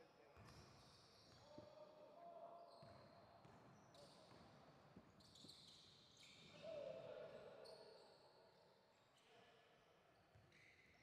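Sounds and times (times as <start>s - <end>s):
shoe squeaks on court: 5.2s - 6.5s.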